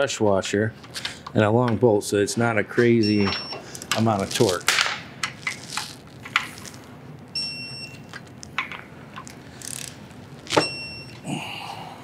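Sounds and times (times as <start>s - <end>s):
electronic beep: 7.4s - 8.1s.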